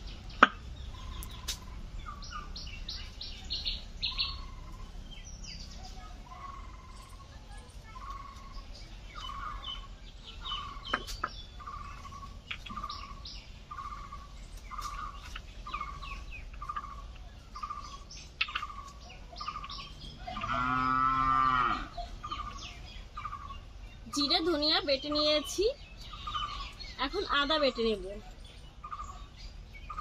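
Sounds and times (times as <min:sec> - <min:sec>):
birds chirping: 0:00.0 - 0:30.0
cow mooing: 0:20.3 - 0:21.9.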